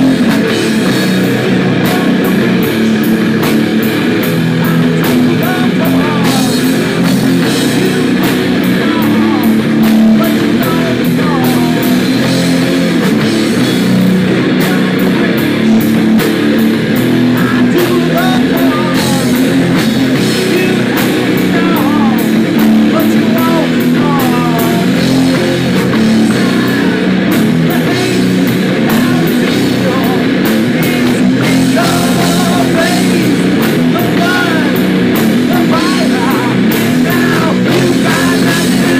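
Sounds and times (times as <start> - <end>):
person singing: 0.0 - 3.5, 4.2 - 38.9
drum kit: 0.0 - 38.9
electric guitars: 0.0 - 38.9.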